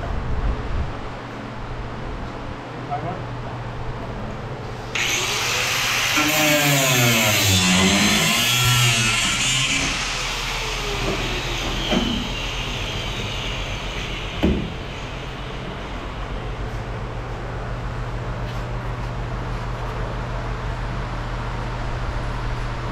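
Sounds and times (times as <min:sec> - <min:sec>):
air grinder cutting sheet metal: 0:04.9 - 0:16.5
sharp knock: 0:14.4 - 0:14.8.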